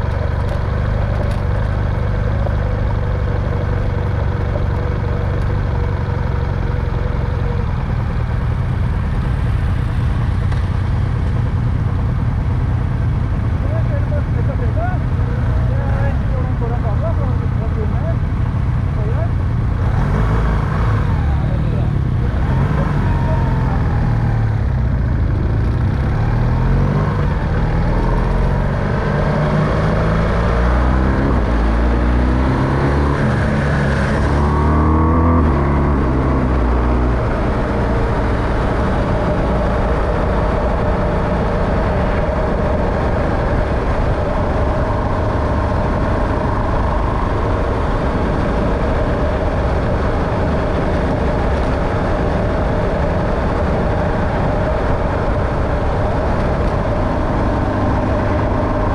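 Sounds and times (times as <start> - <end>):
car engine accelerating: 13.6 - 58.9.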